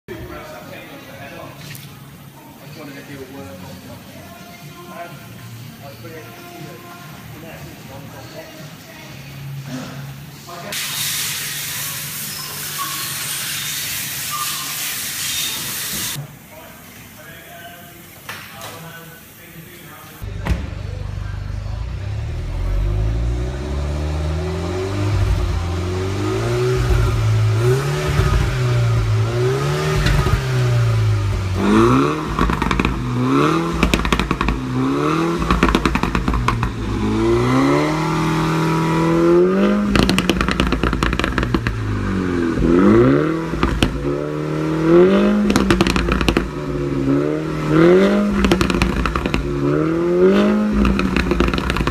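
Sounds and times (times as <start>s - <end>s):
car engine revving: 20.8s - 51.9s
exhaust pops and crackles: 26.7s - 37.5s, 39.7s - 44.2s, 45.3s - 46.8s, 47.8s - 51.9s.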